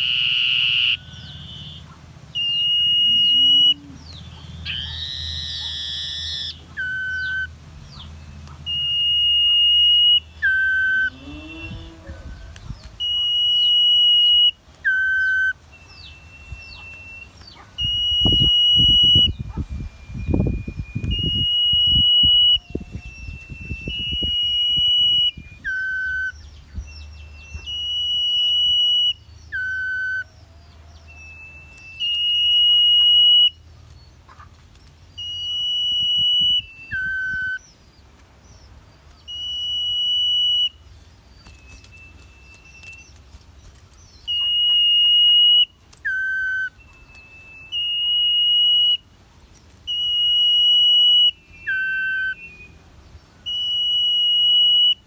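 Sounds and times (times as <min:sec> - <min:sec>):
songbird singing high whistle: 0:00.0 - 0:34.1, 0:35.1 - 0:43.2, 0:44.0 - 0:49.1, 0:49.8 - 0:55.0
rustling: 0:40.7 - 0:47.8.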